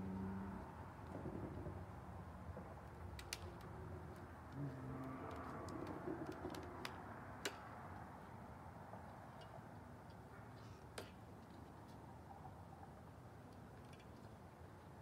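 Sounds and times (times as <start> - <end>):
low outdoor rumble: 0.0 - 9.8.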